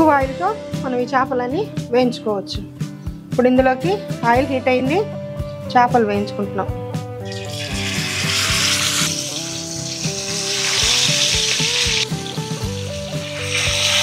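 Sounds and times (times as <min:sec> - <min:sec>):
fish sizzling in hot oil: 0:07.3 - 0:14.0.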